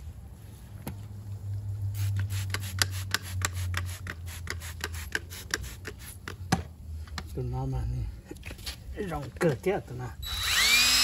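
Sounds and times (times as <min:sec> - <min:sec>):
trigger spray bottle squirting: 0:02.0 - 0:06.0.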